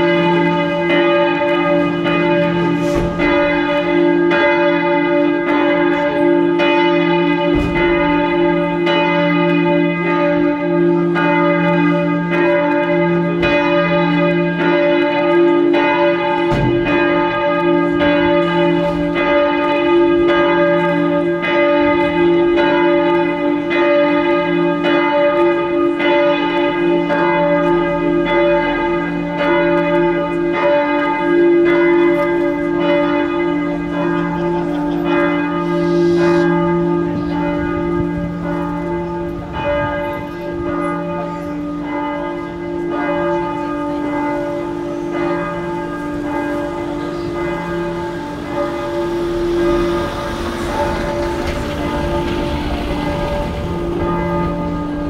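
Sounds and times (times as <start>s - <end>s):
large church bell ringing: 0.0s - 55.0s.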